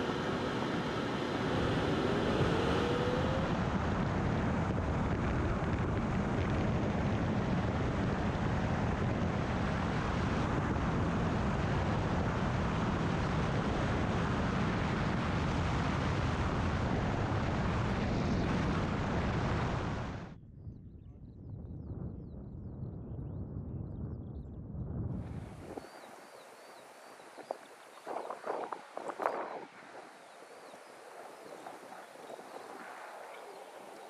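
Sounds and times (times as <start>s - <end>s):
wind rushing over glider: 0.0s - 34.0s.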